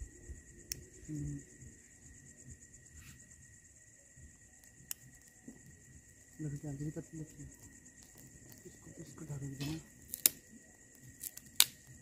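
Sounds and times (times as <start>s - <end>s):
crickets chirring: 0.0s - 12.0s
low insect tone: 0.0s - 12.0s
sharp clicks: 0.6s - 0.9s.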